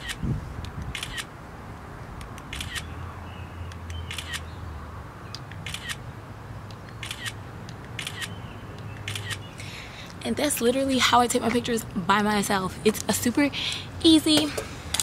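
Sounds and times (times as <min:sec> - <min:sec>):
camera shutter clicking: 0:00.0 - 0:00.2, 0:00.8 - 0:01.3, 0:02.2 - 0:02.9, 0:03.7 - 0:04.5, 0:05.4 - 0:06.0, 0:07.0 - 0:08.4, 0:09.0 - 0:09.5.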